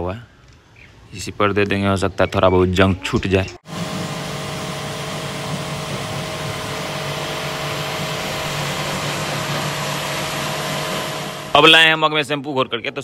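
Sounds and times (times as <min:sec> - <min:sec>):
pressure washer motor hum: 0:03.6 - 0:11.8
water spray hissing: 0:03.7 - 0:11.5.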